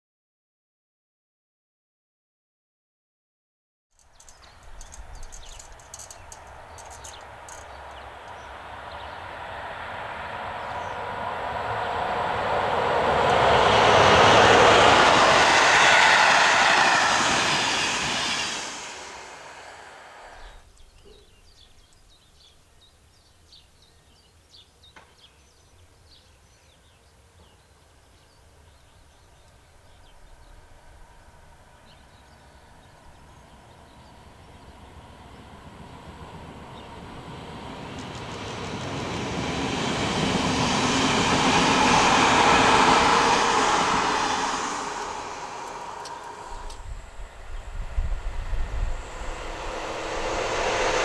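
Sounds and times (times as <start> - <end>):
train wheels on rails: 4.0 - 21.3, 29.2 - 51.0.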